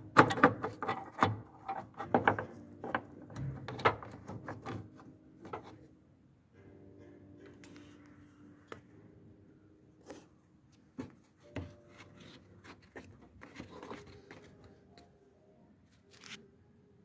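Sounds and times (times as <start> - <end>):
sharp plastic clicks and knocks: 0.0 - 5.7
faint rubbing and handling: 10.0 - 15.2.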